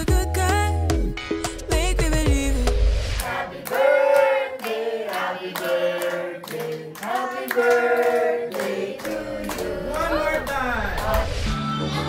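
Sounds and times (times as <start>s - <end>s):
group of people singing a song: 1.7s - 12.0s
hands clapping in time: 3.2s - 9.7s.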